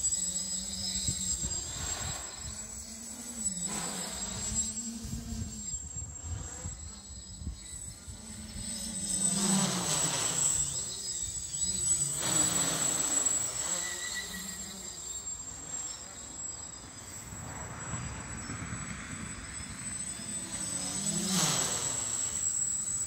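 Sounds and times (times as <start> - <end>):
quadcopter buzzing in flight: 0.0 - 23.0
wind rumbling on microphone: 1.0 - 2.8.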